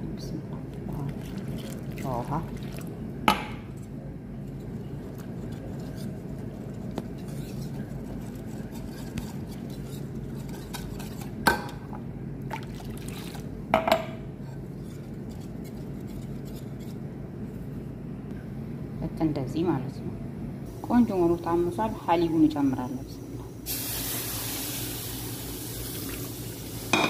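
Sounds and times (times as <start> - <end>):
whisk scraping in metal pot: 3.8 - 11.4, 14.4 - 17.0.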